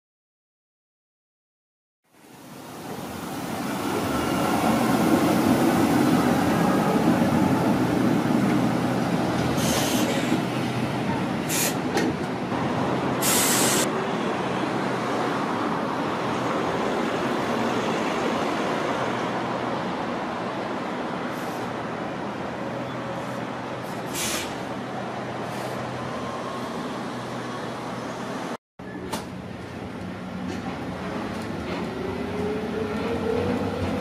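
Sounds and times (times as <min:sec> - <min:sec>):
tram wheels rumbling on rails: 0:02.7 - 0:34.0
short hisses: 0:24.1 - 0:24.6.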